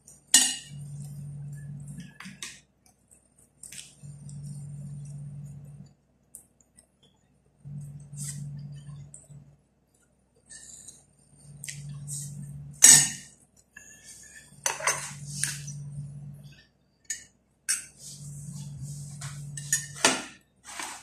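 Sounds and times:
low hum: 0.1 - 2.5, 3.8 - 6.0, 7.2 - 9.7, 10.4 - 17.2, 17.8 - 20.1.

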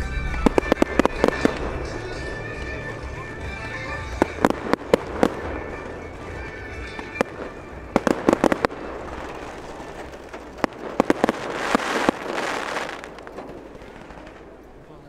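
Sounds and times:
firework shells bursting: 0.2 - 15.0
crackling hiss of firework: 4.2 - 15.0.

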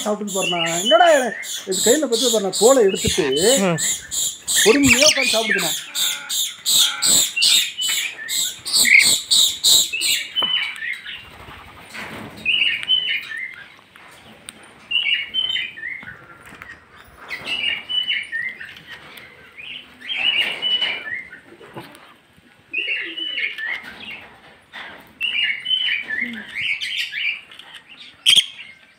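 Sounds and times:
parrots shrieking: 0.0 - 10.3
parrots chattering calls: 0.0 - 11.7, 25.3 - 28.8.

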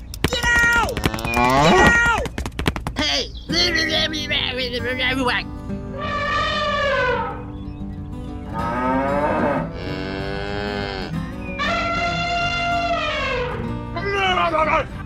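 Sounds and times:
cattle mooing: 1.0 - 2.0, 5.9 - 7.5, 8.5 - 13.7.

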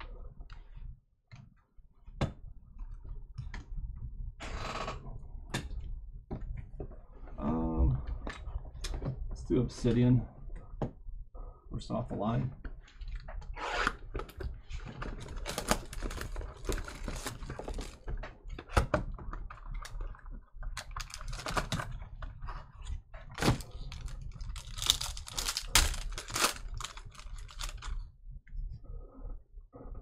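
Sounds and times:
card wrapper crinkling: 15.1 - 18.1, 20.8 - 21.9, 23.3 - 28.0.

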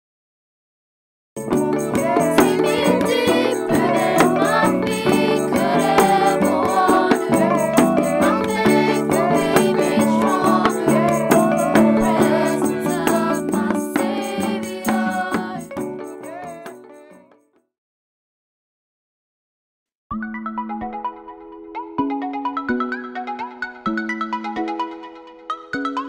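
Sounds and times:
percussive beat: 1.4 - 17.1
song with singing voice: 1.4 - 17.3.

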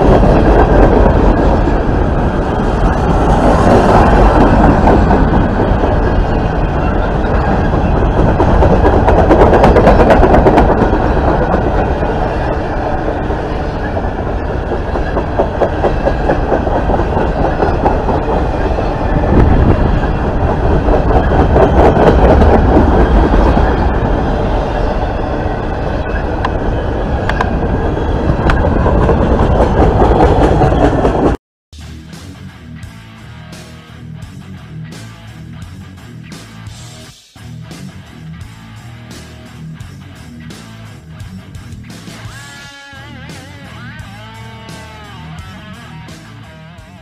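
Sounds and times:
wheels clicking over rail joints: 0.0 - 24.0
steel wheels rumbling on rails: 0.0 - 31.4.

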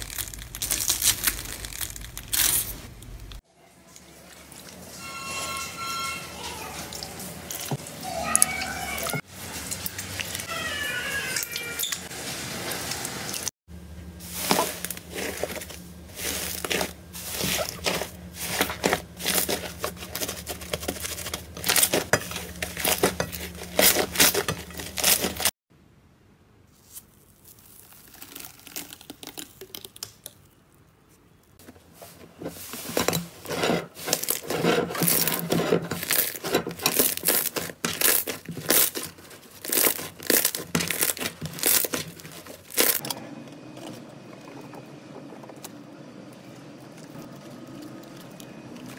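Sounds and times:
slime crackling and popping: 0.0 - 2.8, 27.0 - 30.6, 37.0 - 43.0.

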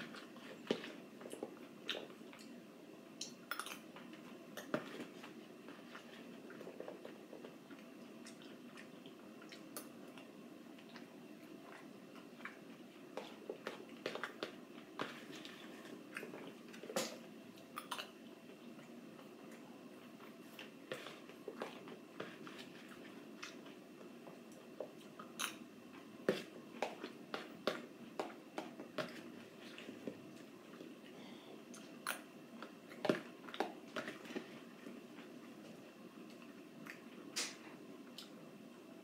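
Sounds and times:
soft chewing: 0.0 - 38.5.

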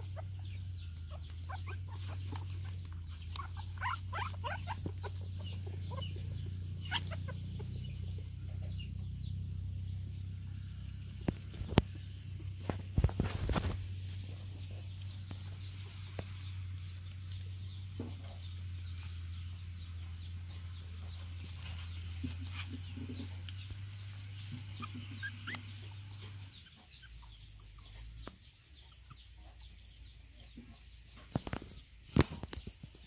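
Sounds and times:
faint animal calls: 0.0 - 9.2, 24.1 - 29.8.

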